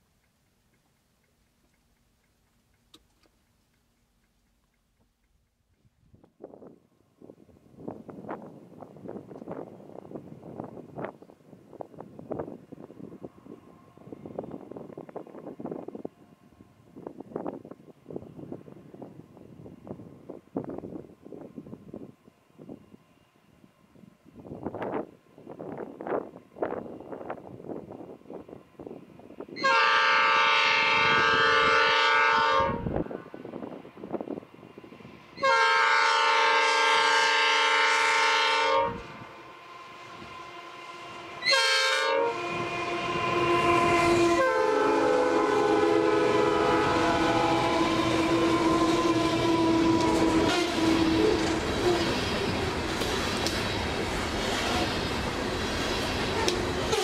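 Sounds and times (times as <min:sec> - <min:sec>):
train wheels on rails: 0:00.0 - 0:57.0
locomotive air horn blasts: 0:29.6 - 0:33.2, 0:35.4 - 0:39.4, 0:40.3 - 0:52.0.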